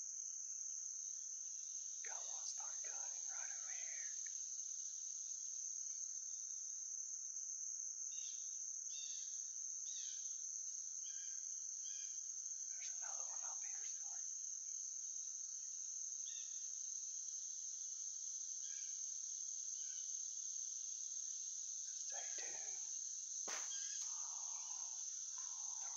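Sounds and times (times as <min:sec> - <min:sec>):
insects droning: 0:00.0 - 0:25.9.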